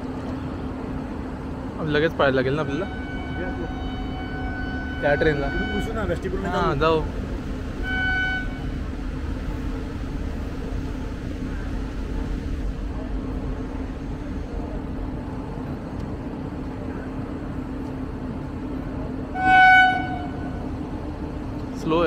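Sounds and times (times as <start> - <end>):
train rumbling: 0.0 - 22.0
train horn: 2.6 - 6.2, 7.7 - 9.0, 19.3 - 20.7.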